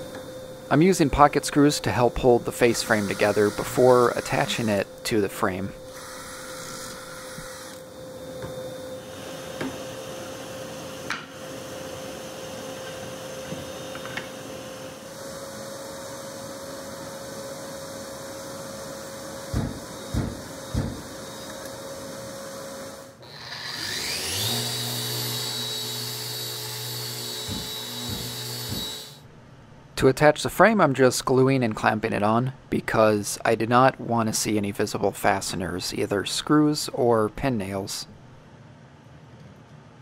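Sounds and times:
dust extractor running: 0.0s - 5.1s, 9.0s - 29.2s
orbital sander whining: 1.9s - 7.8s, 23.2s - 29.2s
drilling holes: 2.6s - 4.8s, 5.9s - 7.9s, 22.3s - 29.2s
impact driver bursts: 23.3s - 29.2s.

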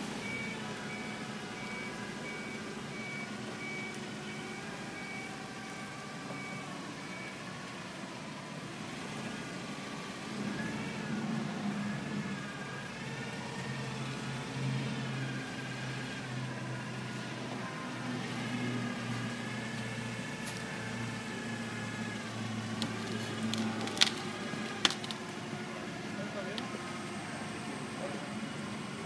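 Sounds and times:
forklift engine running: 0.0s - 29.0s.

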